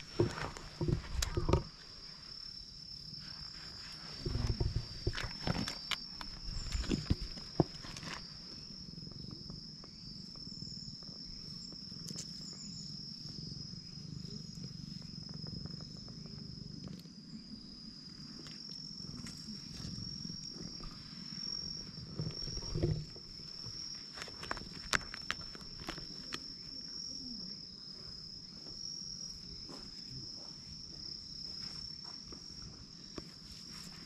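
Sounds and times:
rustling and soft knocks: 0.0s - 2.0s, 3.7s - 8.3s, 19.1s - 26.4s
high-pitched insect trill: 0.0s - 34.0s.

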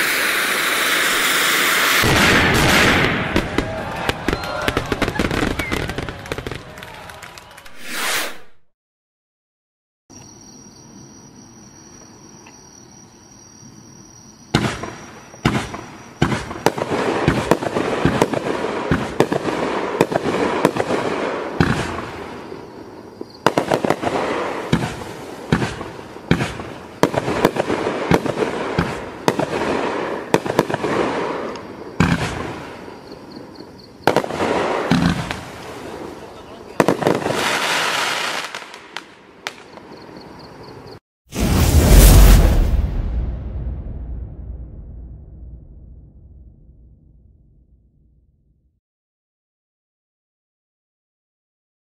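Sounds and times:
fireworks crackle: 0.0s - 8.6s, 23.4s - 32.9s, 34.0s - 39.8s, 41.4s - 44.1s
fireworks launching and bursting: 0.0s - 8.7s, 14.5s - 22.6s, 23.2s - 33.0s, 34.0s - 39.9s, 41.3s - 48.0s
faint insect chirring: 10.1s - 16.2s, 32.8s - 34.1s, 39.6s - 41.0s.

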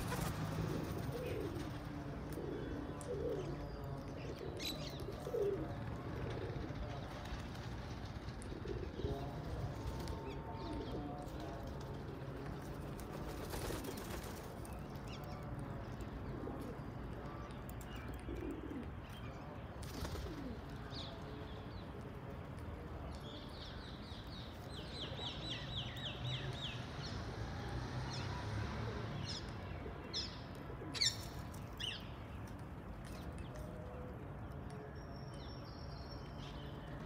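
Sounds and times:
wings fluttering: 0.0s - 1.9s, 12.8s - 14.7s
doves cooing: 0.0s - 14.6s, 15.4s - 21.4s.

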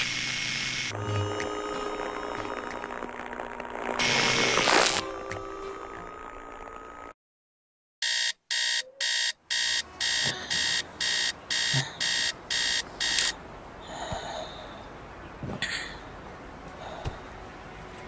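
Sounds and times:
high-pitched alarm beeps: 8.0s - 13.4s.

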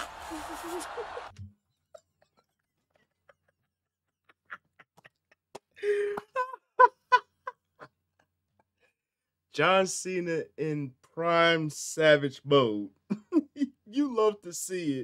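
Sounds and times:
man laughing: 2.8s - 8.3s, 13.1s - 14.1s.

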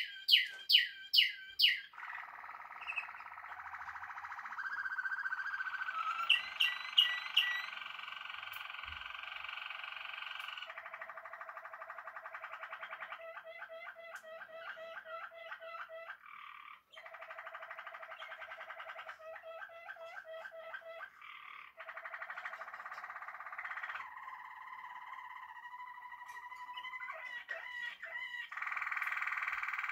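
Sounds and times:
canary singing trills: 0.0s - 29.9s.

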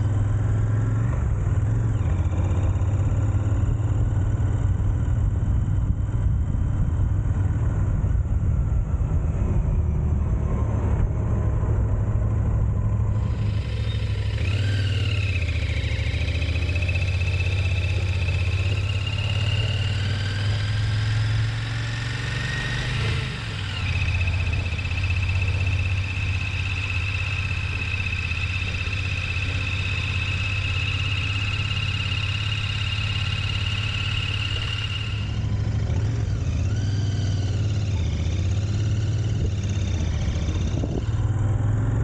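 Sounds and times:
high-pitched whine: 0.0s - 42.0s
motorcycle engine running: 0.0s - 42.0s.

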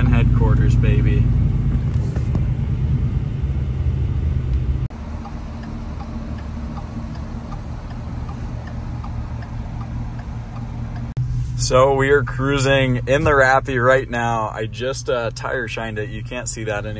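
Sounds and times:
engine rumbling and idling: 0.0s - 16.9s
faint light ticking: 5.2s - 11.2s.

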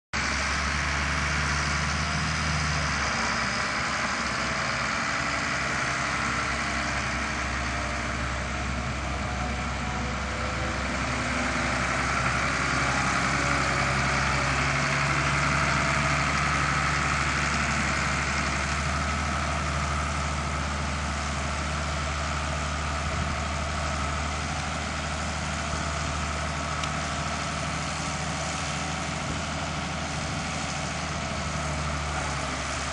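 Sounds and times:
tractor engine running: 0.2s - 32.9s.

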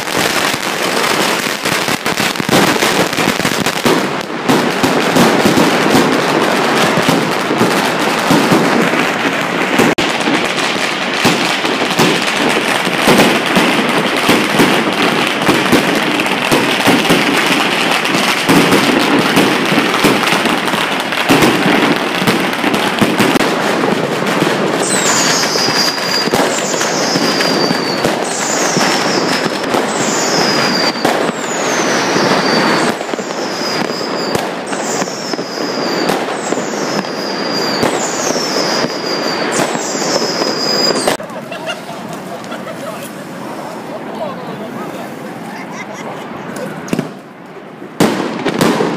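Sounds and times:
aerial fireworks bursting: 0.0s - 48.9s
firecracker strings crackling: 0.0s - 48.9s
high falling whistle: 24.8s - 41.2s.

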